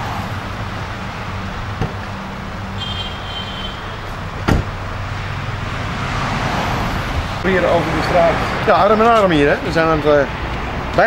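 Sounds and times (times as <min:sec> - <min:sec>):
car door thump: 0:01.8 - 0:02.2, 0:04.4 - 0:04.8.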